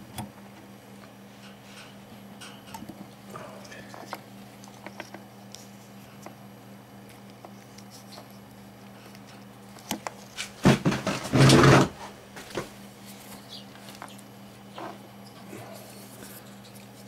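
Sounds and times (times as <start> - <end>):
steady low hum: 0.0 - 17.0
clattering and rubbing: 10.1 - 13.2.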